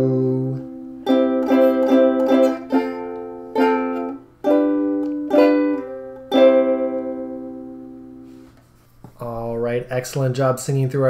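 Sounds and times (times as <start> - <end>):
ukulele strumming chords: 0.0 - 8.6.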